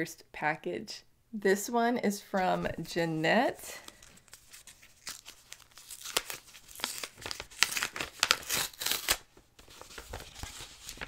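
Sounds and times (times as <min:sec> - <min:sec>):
paper envelope tearing: 0:03.8 - 0:11.0.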